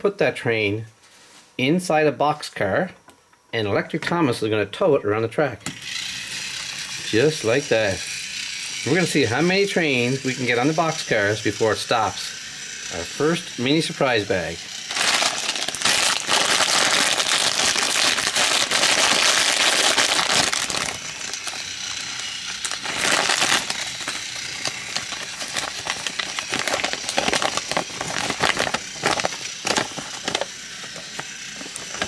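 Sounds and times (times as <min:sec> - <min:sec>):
foil plastic bag crinkling: 0:14.9 - 0:32.0.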